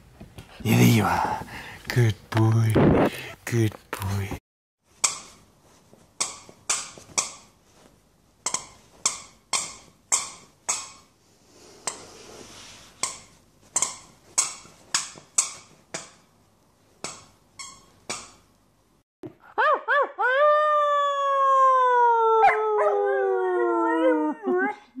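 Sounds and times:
squeaky toy squeaking: 17.5s - 18.2s.

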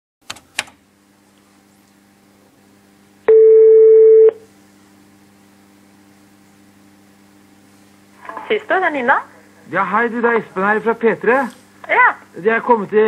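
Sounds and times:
faint phone line hum: 3.2s - 4.4s
telephone ringback beep: 3.3s - 4.4s.

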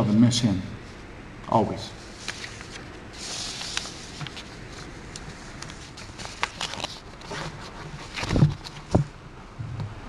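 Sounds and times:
paper rustling: 2.0s - 9.0s.

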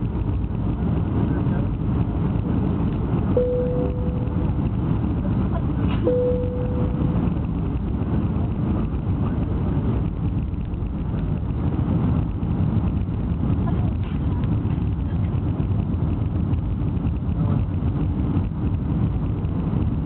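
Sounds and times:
airliner cabin rumble: 0.0s - 20.0s
ding-like tones: 3.4s - 4.4s, 6.1s - 7.2s.

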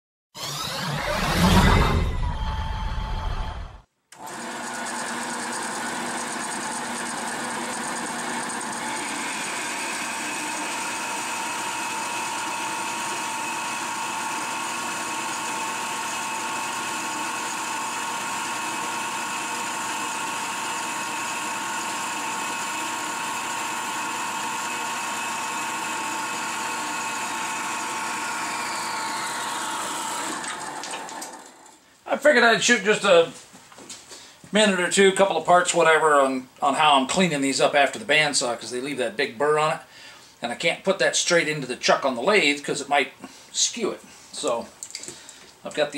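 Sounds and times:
bandsaw cutting metal: 0.4s - 2.5s, 4.2s - 31.8s.

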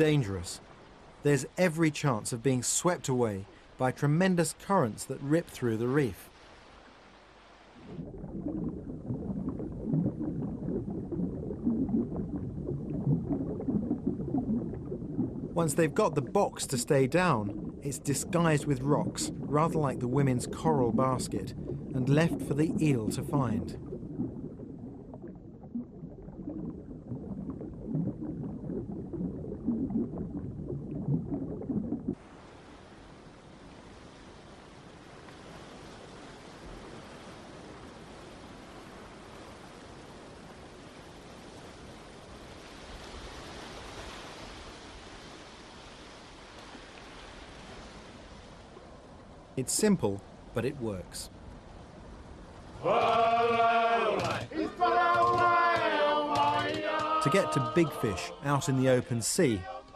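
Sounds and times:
muffled underwater bubbling: 0.0s - 6.3s, 7.7s - 34.5s, 47.4s - 51.5s, 52.7s - 59.9s
surf and sea hiss: 0.0s - 7.9s, 32.2s - 40.2s, 55.9s - 59.8s.

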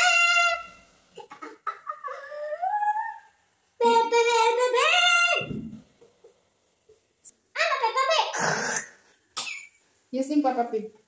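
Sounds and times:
girl singing wordless notes: 2.4s - 5.7s.

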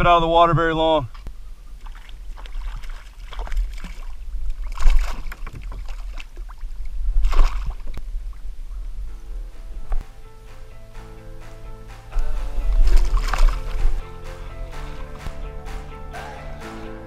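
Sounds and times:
wind rumble on microphone: 1.0s - 15.4s
water sloshing around kayak: 1.1s - 9.0s, 12.6s - 14.0s
loud splashes: 1.8s - 8.0s, 12.2s - 16.8s.

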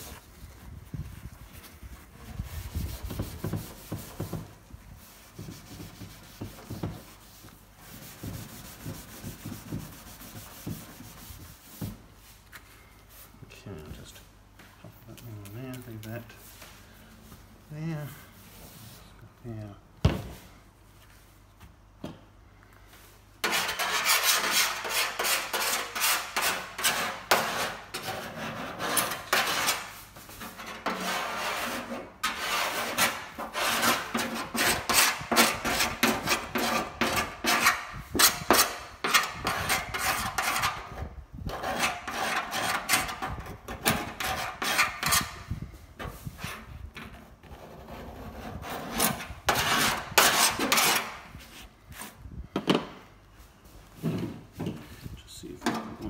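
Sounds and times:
hand scrubbing metal surface: 2.0s - 12.0s, 23.4s - 40.9s.

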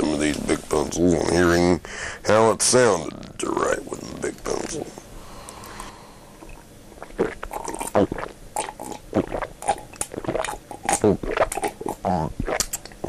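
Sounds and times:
person sipping and gulping: 5.4s - 13.0s.

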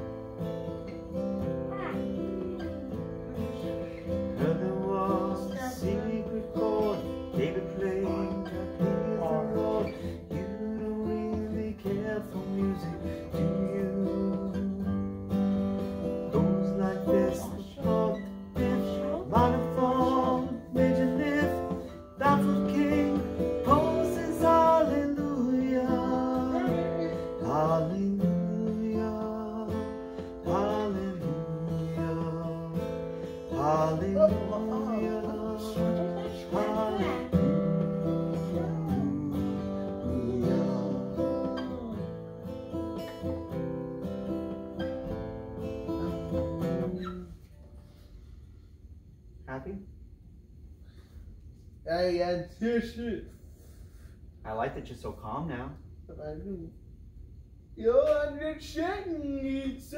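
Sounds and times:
acoustic guitar strumming: 0.0s - 48.4s
man singing: 3.3s - 15.3s, 16.3s - 42.4s, 45.8s - 47.4s, 57.8s - 59.9s.

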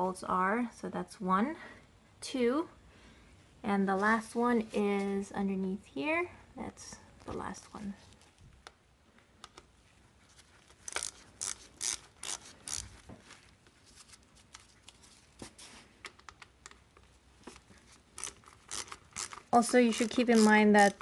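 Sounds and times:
socket ratchet clicking: 10.9s - 13.0s, 18.2s - 21.0s.

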